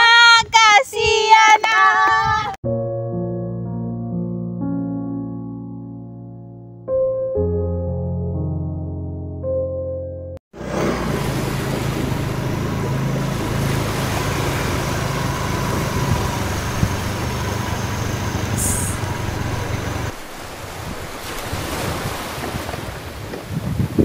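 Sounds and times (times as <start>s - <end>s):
wind noise on microphone: 0.0s - 2.6s, 10.7s - 24.0s
scooter engine running: 10.6s - 20.2s.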